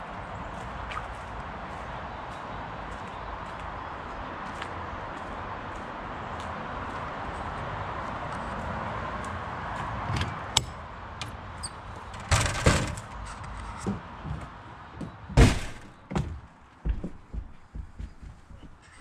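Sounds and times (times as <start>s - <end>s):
door opening with a clatter: 11.6s - 14.0s, 15.4s - 16.4s
heavy thunk: 15.3s - 17.5s.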